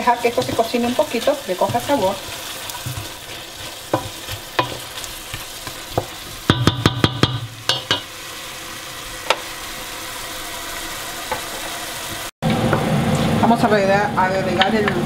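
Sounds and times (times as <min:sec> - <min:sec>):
wooden spoon scraping a pot: 0:00.0 - 0:06.5
food sizzling in a pot: 0:00.0 - 0:15.0
spoon tapping pot rim: 0:06.0 - 0:08.1.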